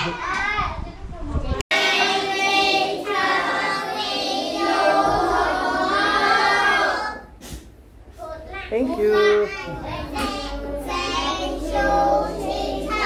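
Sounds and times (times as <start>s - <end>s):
children singing in unison: 1.7s - 7.3s, 9.6s - 13.0s.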